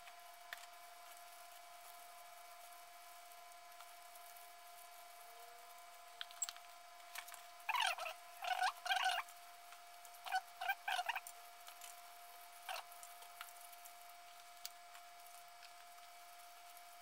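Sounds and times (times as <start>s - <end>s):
faint hum: 0.0s - 17.0s
gloved hands squeaking and squelching: 7.7s - 9.2s, 10.3s - 11.2s.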